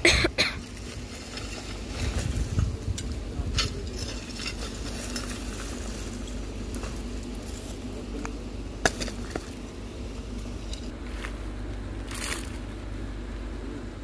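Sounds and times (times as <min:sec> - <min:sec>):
steady low hum: 0:00.0 - 0:14.0
spade scraping through rubble: 0:03.4 - 0:07.8.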